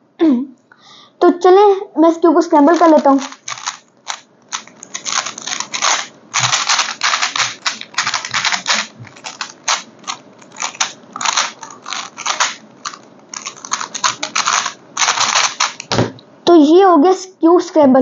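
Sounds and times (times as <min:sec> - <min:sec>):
puzzle cube clicking: 0:02.6 - 0:16.0.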